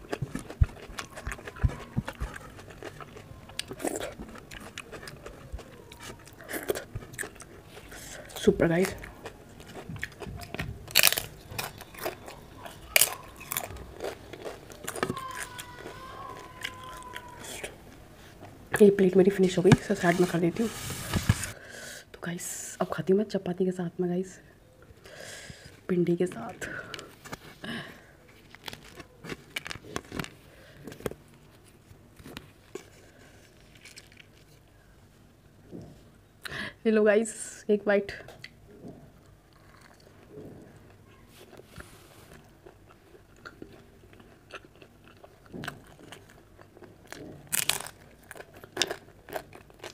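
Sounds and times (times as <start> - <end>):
crunching papad: 0.0 - 18.5, 28.2 - 34.6, 41.3 - 49.9
flatbread tearing with dry crackles: 8.8 - 17.7, 28.3 - 34.7, 41.3 - 49.9.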